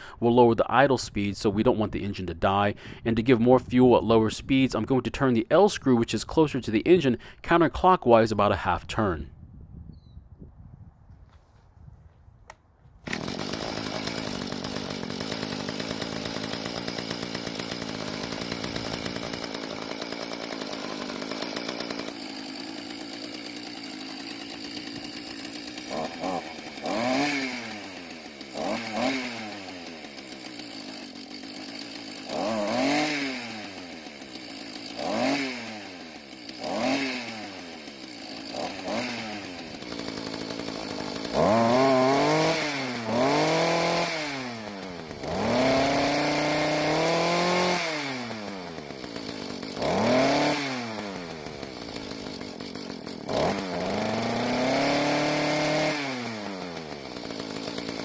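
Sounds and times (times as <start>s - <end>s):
tiller engine revving: 13.0s - 58.0s.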